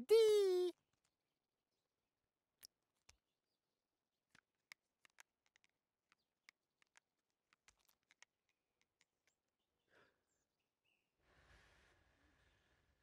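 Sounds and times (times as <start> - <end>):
faint small plastic clicks: 4.2 - 9.6
soft breath: 9.8 - 10.4, 11.2 - 13.0.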